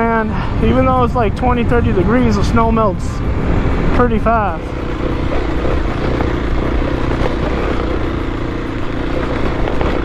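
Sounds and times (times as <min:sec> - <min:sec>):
dirt bike engine under load: 0:04.7 - 0:10.0.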